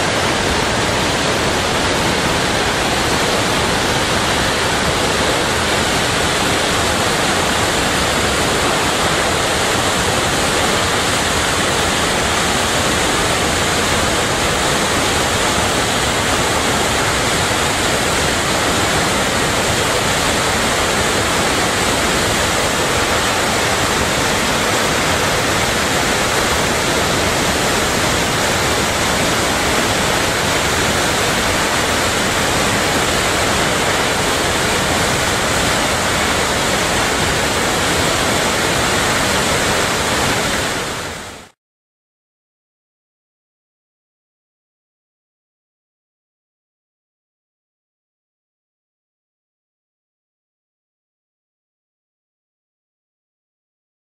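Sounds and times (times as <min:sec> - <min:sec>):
waterfall rushing: 0:00.0 - 0:41.6.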